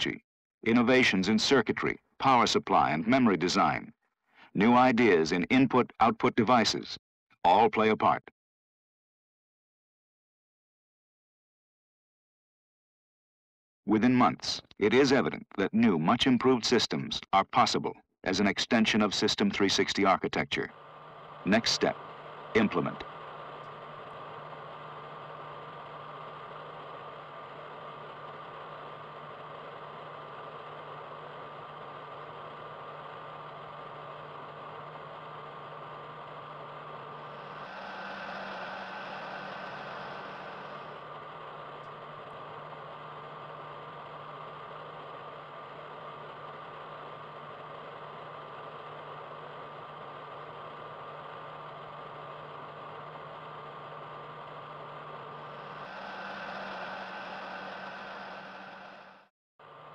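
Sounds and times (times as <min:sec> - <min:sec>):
mechanical hum and hiss: 0:20.6 - 0:59.9.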